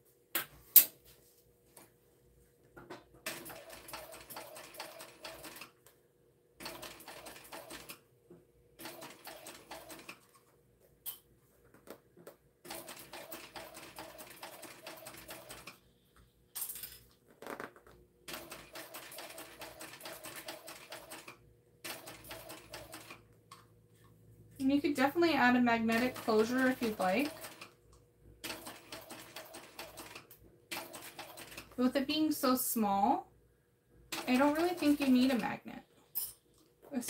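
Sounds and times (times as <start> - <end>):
sewing machine needle clatter: 3.3 - 5.7, 6.6 - 8.0, 8.8 - 10.4, 18.3 - 23.2, 25.9 - 27.8, 28.4 - 31.8, 34.1 - 35.4.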